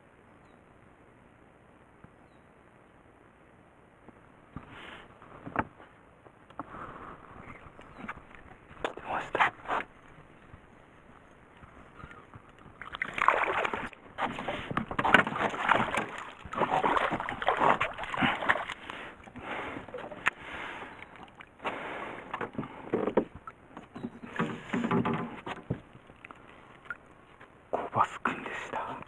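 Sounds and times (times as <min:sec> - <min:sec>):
fish splashing at water surface: 0:12.0 - 0:21.6.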